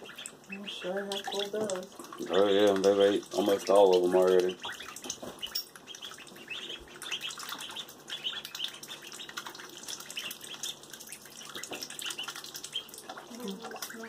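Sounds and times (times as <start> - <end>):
ducklings peeping: 0.0 - 14.0
light water splashing: 0.0 - 14.0.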